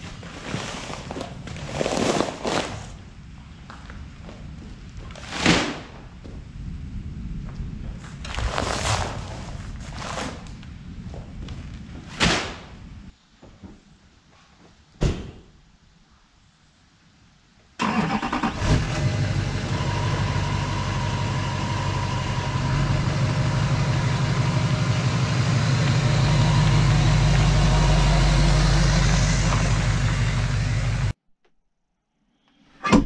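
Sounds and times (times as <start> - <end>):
pickup truck engine running: 18.6 - 31.1.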